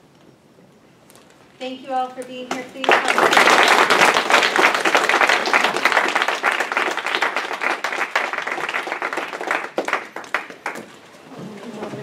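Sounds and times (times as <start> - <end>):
audience applauding: 2.5 - 12.0.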